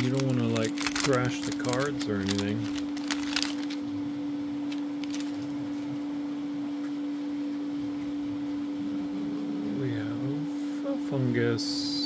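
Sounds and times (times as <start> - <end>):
foil wrapper crinkling: 0.0 - 3.9, 4.6 - 5.9
steady hum: 0.0 - 12.0.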